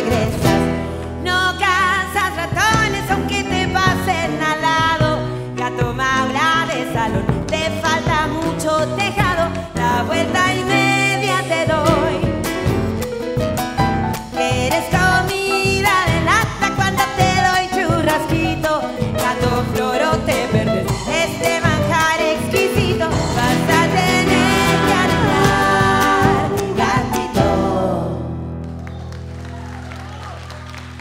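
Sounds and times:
person singing: 0.0s - 12.9s, 14.2s - 28.5s
live folk band playing: 0.0s - 29.7s.

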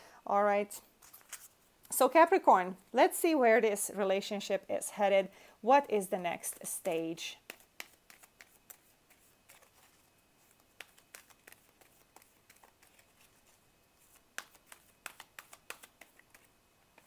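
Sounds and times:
cards being shuffled: 1.0s - 1.6s, 6.4s - 17.0s.

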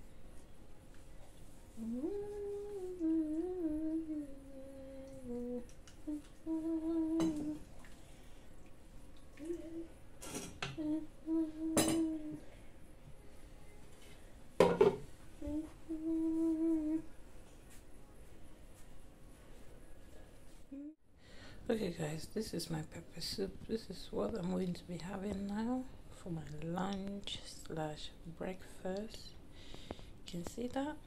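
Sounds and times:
woman humming: 1.7s - 7.7s, 9.4s - 10.0s, 10.6s - 12.5s, 15.4s - 17.1s, 20.7s - 21.0s.

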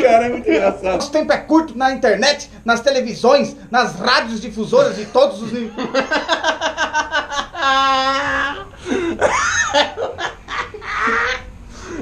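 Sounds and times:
men laughing: 4.7s - 11.6s.

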